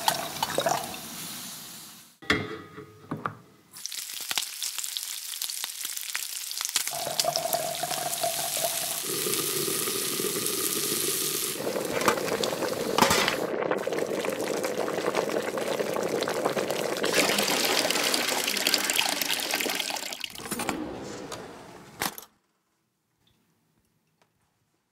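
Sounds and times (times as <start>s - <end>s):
meat sizzling in a pot: 3.8s - 16.8s
water and liquid sounds: 11.6s - 18.5s.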